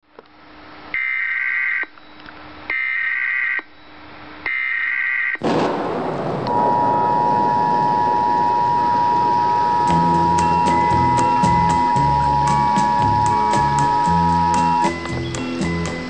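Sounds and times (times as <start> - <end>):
steady alert tone: 6.5 - 15.0
buzzy digital alert bursts: 6.6 - 15.0
loud hiss: 9.1 - 16.0.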